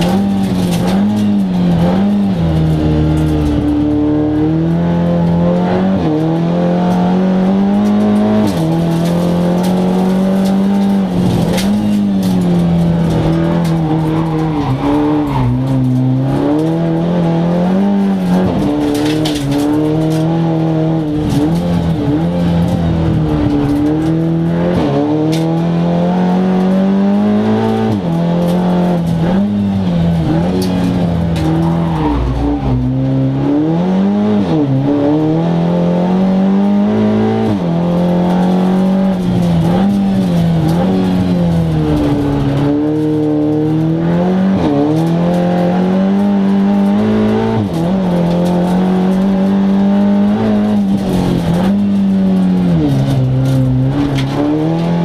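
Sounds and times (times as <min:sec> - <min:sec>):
sharp clicks and knocks: 0:00.0 - 0:25.7, 0:37.4 - 0:55.0
race car engine revving: 0:00.0 - 0:55.0.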